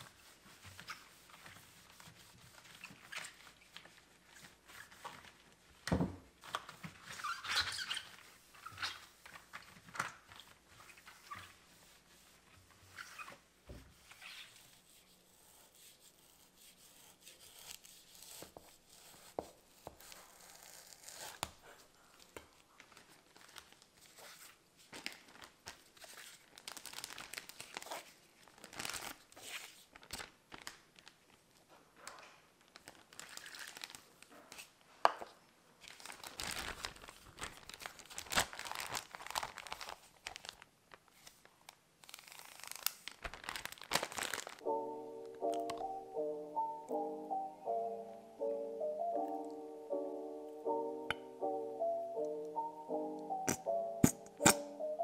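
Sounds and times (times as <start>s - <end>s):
thin plastic crinkling: 0.0s - 13.4s, 19.4s - 46.0s, 52.5s - 55.0s.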